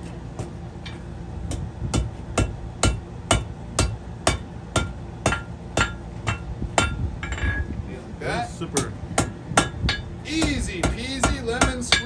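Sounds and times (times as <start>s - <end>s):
hammer striking steel on anvil: 0.4s - 7.6s, 8.7s - 12.0s.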